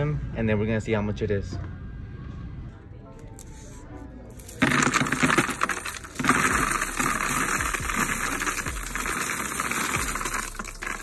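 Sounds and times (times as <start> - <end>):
coins clattering into machine tray: 4.4 - 11.0.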